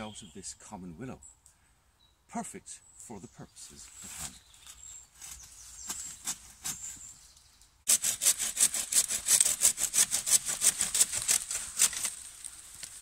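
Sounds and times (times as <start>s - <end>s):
branches rustling: 3.7s - 13.0s
bow saw cutting wood: 7.9s - 13.0s.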